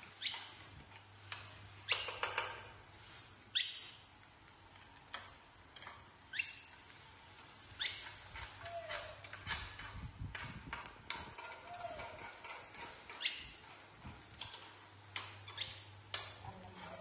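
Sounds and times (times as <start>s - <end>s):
baby monkeys squeaky calls: 3.6s - 4.0s, 6.3s - 6.9s.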